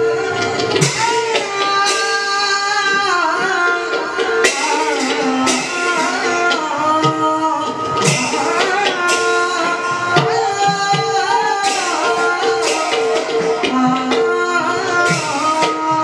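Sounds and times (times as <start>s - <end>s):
hand drum strokes: 0.0s - 16.0s
cymbal clashes: 0.5s - 2.8s, 3.4s - 6.8s, 8.0s - 13.9s.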